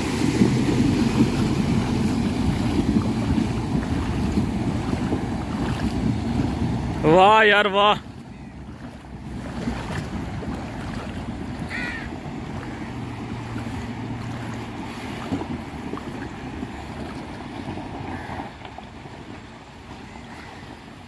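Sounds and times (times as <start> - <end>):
wind on microphone: 0.0 - 7.1
low engine hum: 0.0 - 21.0
river water flowing: 0.0 - 21.0.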